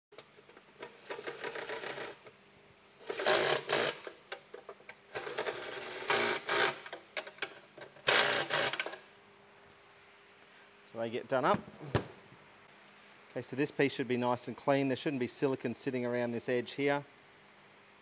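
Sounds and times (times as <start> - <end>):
cordless drill driving bolts: 0.8 - 2.2, 3.0 - 4.1, 8.0 - 9.0.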